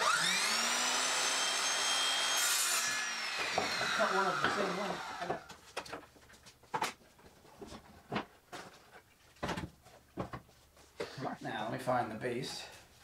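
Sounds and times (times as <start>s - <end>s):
wooden boards knocking: 3.4s - 4.6s.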